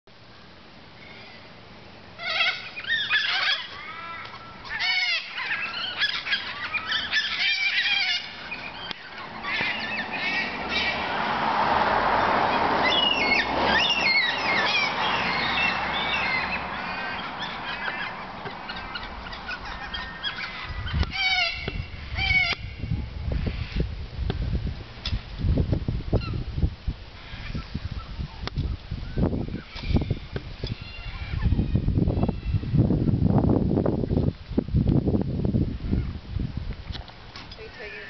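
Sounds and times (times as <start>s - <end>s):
cockatoos calling: 2.2s - 23.9s, 27.2s - 28.4s, 29.0s - 32.7s.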